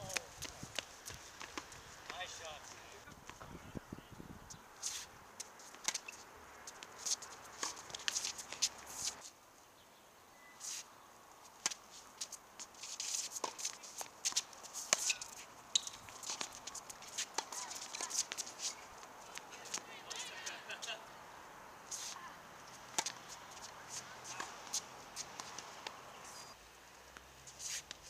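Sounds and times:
background hiss: 0:00.0 - 0:28.0
shoes scuffing on hard court: 0:04.8 - 0:09.3, 0:11.6 - 0:20.2, 0:21.9 - 0:26.0
tennis ball strikes: 0:13.3 - 0:18.6, 0:22.8 - 0:26.0.

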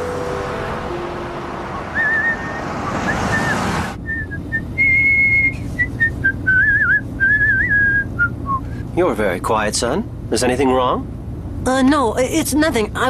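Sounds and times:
street traffic rush: 0:00.0 - 0:13.0
man whistling a tune: 0:02.0 - 0:08.7.

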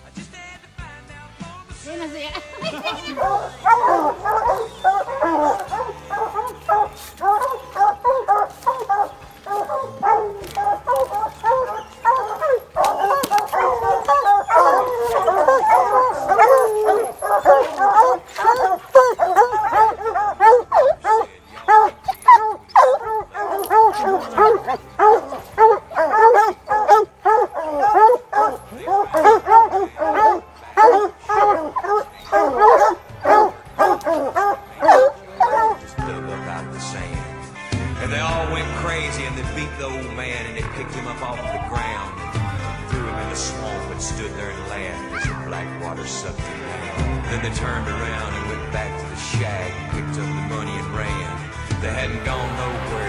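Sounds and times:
country music: 0:00.0 - 0:53.0
hounds baying: 0:02.4 - 0:37.3, 0:52.0 - 0:53.0.

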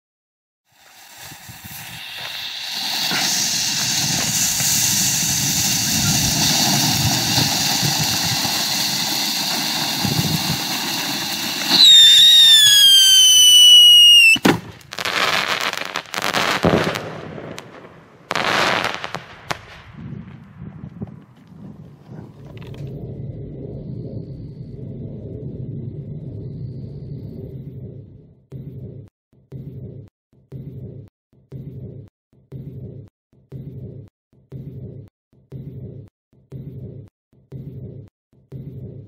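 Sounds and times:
firework flare hissing: 0:00.7 - 0:17.2
firework whistle: 0:00.7 - 0:19.2
firework bang: 0:01.2 - 0:21.4.

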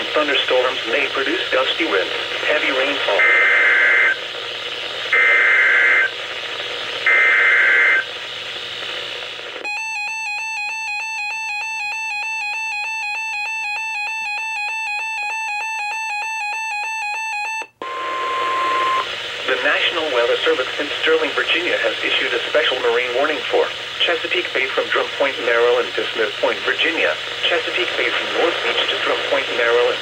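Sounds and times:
steady warning tone: 0:09.6 - 0:19.9
warbling electronic beeping: 0:17.8 - 0:19.1.

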